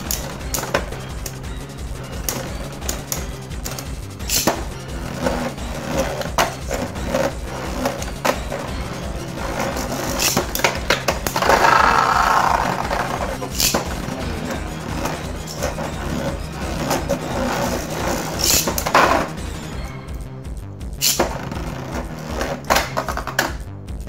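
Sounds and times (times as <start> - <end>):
spinning tops clicking and knocking: 0.0 - 19.4
rasping of spinning tops: 0.0 - 19.5, 21.0 - 23.5.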